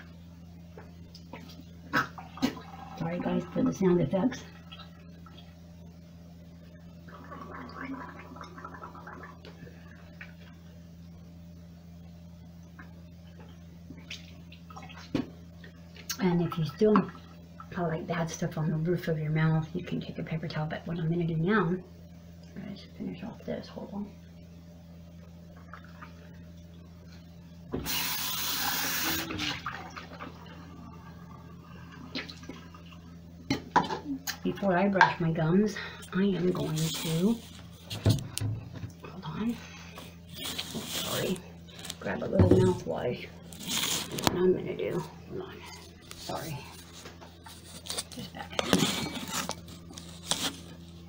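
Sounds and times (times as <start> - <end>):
water splashing into sink: 1.9 - 3.8, 27.8 - 30.6
person gargling: 7.1 - 9.5
low hum: 29.3 - 51.0.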